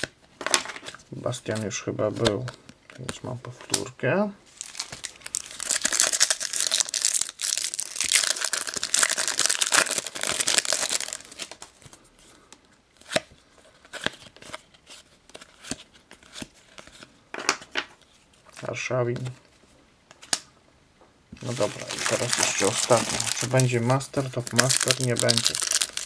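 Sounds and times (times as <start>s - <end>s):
card packet tearing and crinkling: 4.5s - 11.8s, 21.4s - 26.0s.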